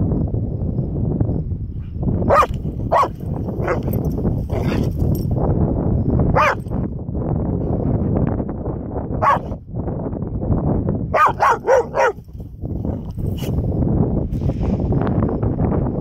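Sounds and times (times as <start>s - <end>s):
puppy barking: 2.3s - 5.0s, 6.4s - 6.7s, 9.2s - 9.6s, 11.1s - 12.3s.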